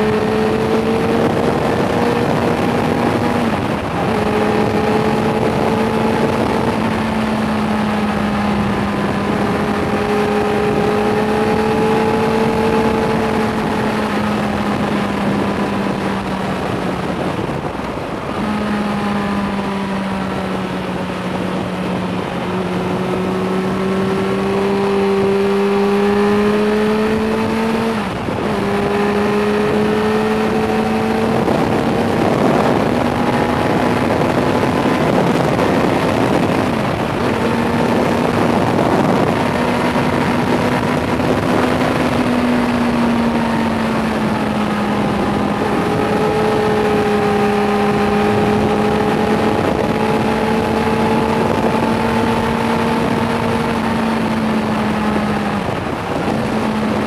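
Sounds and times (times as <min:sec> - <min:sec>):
motorcycle engine running: 0:00.0 - 0:57.0
road noise: 0:00.0 - 0:57.0
wind noise: 0:00.0 - 0:57.0.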